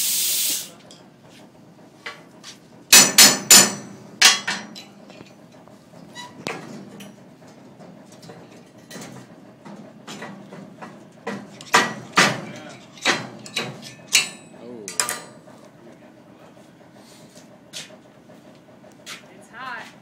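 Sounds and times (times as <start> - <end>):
metal knocks on steel: 2.9 - 4.9, 10.1 - 15.4.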